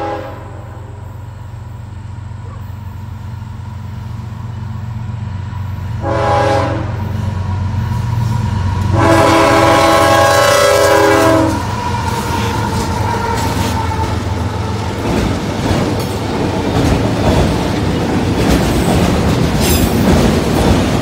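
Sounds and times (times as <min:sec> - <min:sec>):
locomotive horn blasts: 0:00.0 - 0:01.2, 0:06.0 - 0:07.2, 0:08.9 - 0:14.2
diesel engines rumbling: 0:00.0 - 0:21.0.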